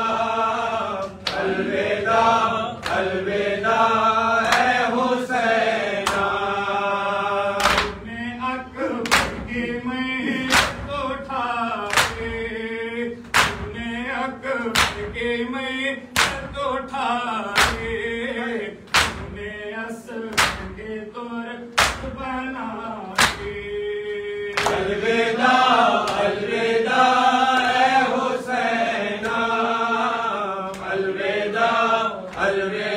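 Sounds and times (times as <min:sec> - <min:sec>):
men chanting a lament: 0:00.0 - 0:32.9
hands slapping bare chests: 0:04.4 - 0:04.8, 0:06.0 - 0:06.3, 0:07.6 - 0:08.0, 0:09.0 - 0:09.5, 0:10.4 - 0:11.0, 0:11.9 - 0:12.3, 0:13.3 - 0:13.7, 0:14.8 - 0:15.1, 0:16.2 - 0:16.6, 0:17.6 - 0:18.0, 0:18.9 - 0:19.4, 0:20.3 - 0:20.8, 0:21.8 - 0:22.2, 0:23.2 - 0:23.6, 0:24.6 - 0:24.9.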